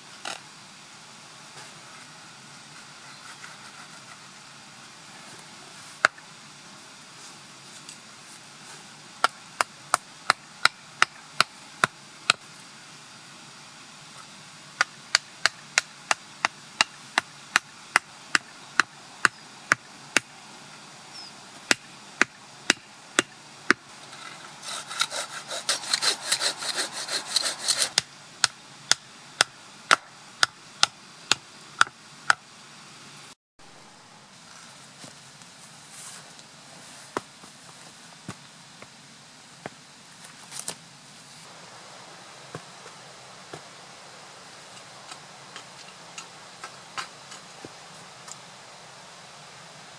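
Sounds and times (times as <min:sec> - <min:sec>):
rough scraping: 0:01.6 - 0:04.4, 0:24.0 - 0:28.0
hatchet knocking wooden stake: 0:14.8 - 0:20.3, 0:21.7 - 0:23.8.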